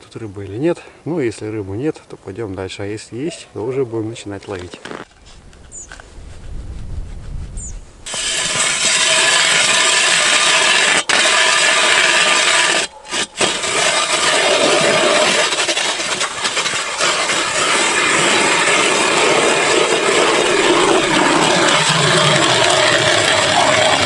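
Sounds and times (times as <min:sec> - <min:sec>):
ice auger grinding through ice: 0:08.1 - 0:24.0.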